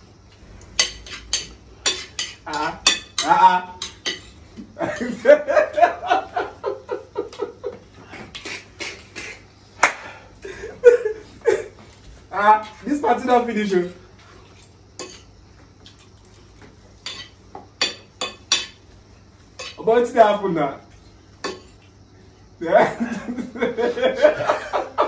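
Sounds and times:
spoons clinking on plates: 0.6 - 5.2, 14.5 - 16.0, 17.0 - 18.8, 19.6 - 19.8, 21.4 - 22.0.

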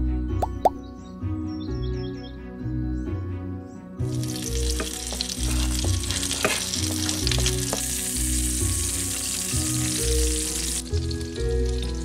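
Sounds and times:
background music: 0.0 - 12.0
food sizzling in oil: 4.1 - 12.0.

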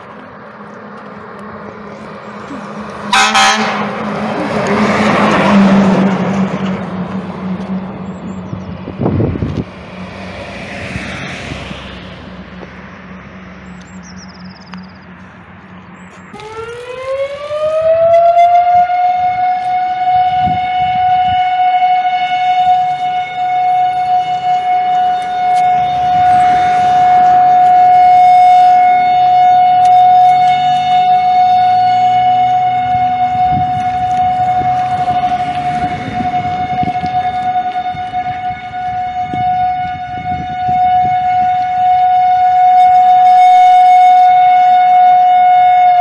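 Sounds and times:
low engine hum: 0.0 - 45.0
siren winding up: 16.3 - 38.4.

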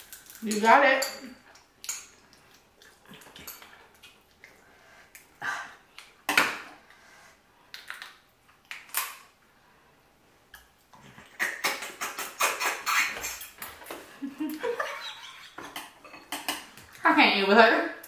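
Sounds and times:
chewing and lip-smacking: 1.6 - 5.3.

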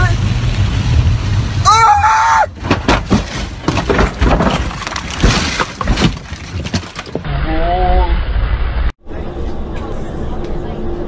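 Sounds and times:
car crash impacts: 2.5 - 7.2
glass breaking: 2.6 - 7.2.

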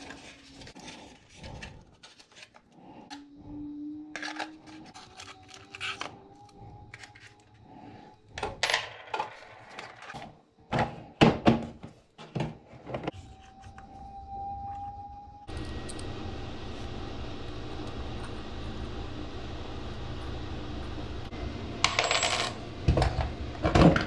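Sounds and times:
small plastic and metal parts clattering: 4.1 - 7.6, 8.4 - 10.4.

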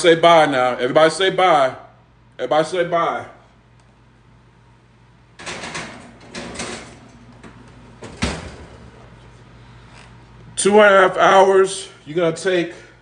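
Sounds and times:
oven door shutting thud: 5.4 - 8.9.

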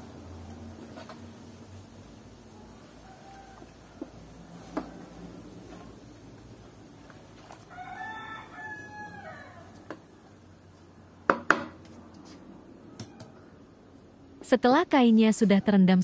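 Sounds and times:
rooster crowing: 2.5 - 5.4, 7.5 - 10.4, 12.8 - 13.6.

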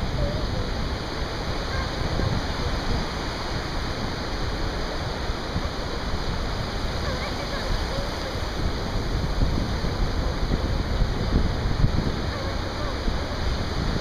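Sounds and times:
surf breaking on a beach: 0.0 - 14.0.

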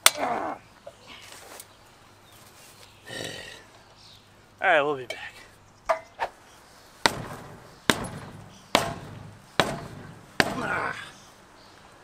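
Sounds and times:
hammer blows on metal: 7.0 - 11.2.

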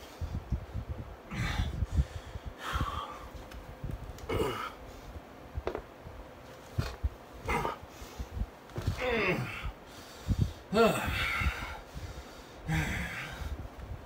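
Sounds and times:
body rustling and bumping on floor: 8.6 - 9.0.

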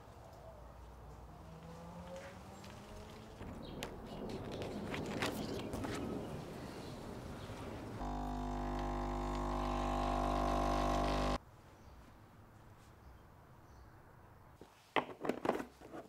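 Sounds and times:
coffee machine pump humming: 8.0 - 11.4.

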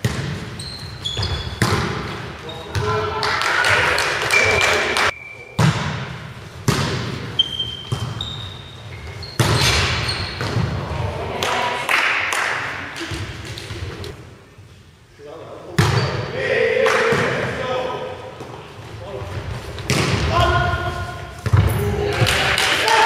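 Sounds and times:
volleyball hits echoing: 0.0 - 0.6, 1.2 - 8.2, 19.8 - 23.0
shoes squeaking on court: 0.1 - 1.7, 7.3 - 10.6.

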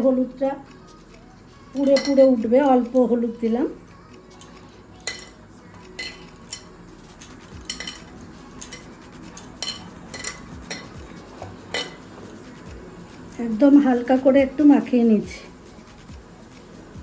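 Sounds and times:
ringing clinks against ceramic bowl: 5.0 - 6.8, 7.6 - 8.9, 9.6 - 11.0, 11.7 - 12.0.

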